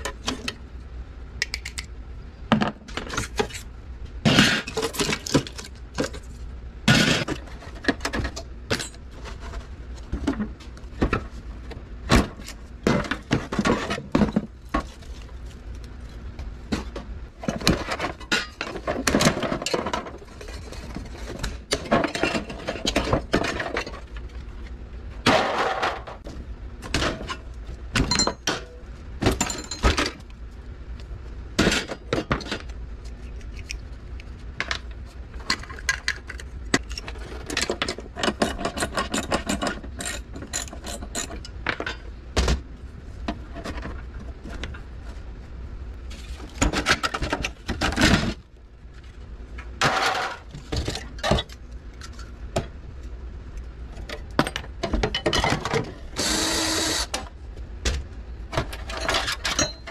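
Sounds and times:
cordless drill running: 0:56.2 - 0:57.1.

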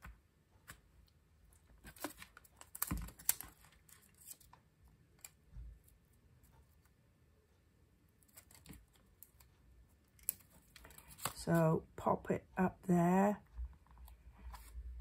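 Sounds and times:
paper crinkling: 0:01.6 - 0:04.6, 0:10.2 - 0:11.5.

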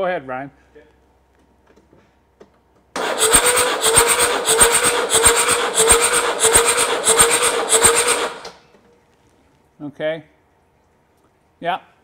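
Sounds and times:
starter motor cranking: 0:03.0 - 0:08.6.

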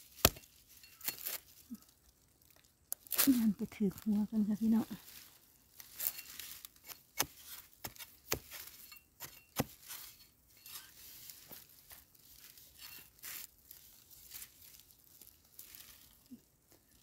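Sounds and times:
earth scraping and crumbling: 0:00.0 - 0:17.0.

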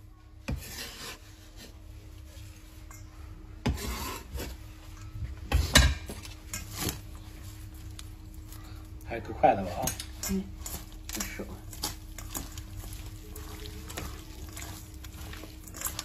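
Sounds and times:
garlic scraped across wooden board: 0:00.5 - 0:01.7, 0:03.7 - 0:04.6.

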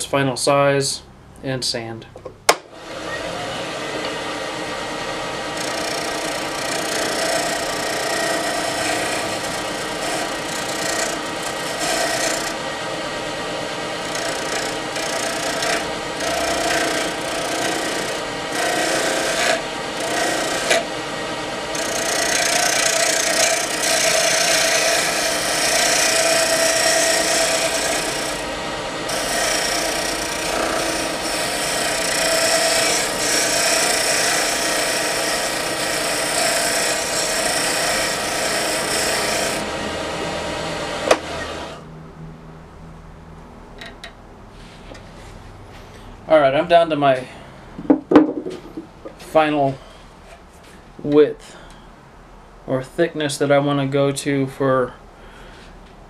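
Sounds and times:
lathe motor hum: 0:02.8 - 0:41.9
gouge scraping turning wood: 0:05.5 - 0:12.6, 0:14.0 - 0:20.9, 0:21.7 - 0:28.5, 0:29.1 - 0:40.3.

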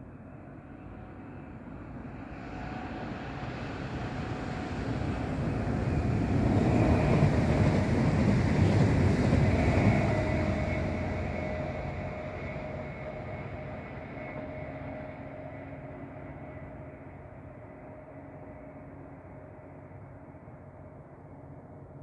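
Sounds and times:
faint steady whine: 0:00.0 - 0:22.0
train wheels rumbling on rails: 0:02.4 - 0:17.5.

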